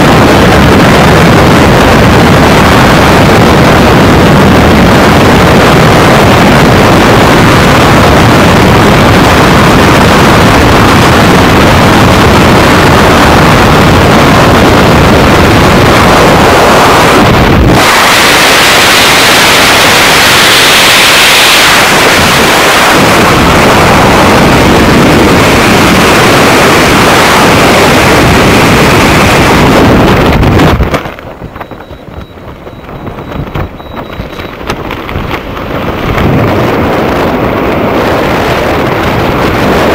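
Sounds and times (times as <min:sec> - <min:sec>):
fluttering wind under parachute: 0:00.0 - 0:39.9
freefall wind blasting microphone: 0:00.0 - 0:39.9.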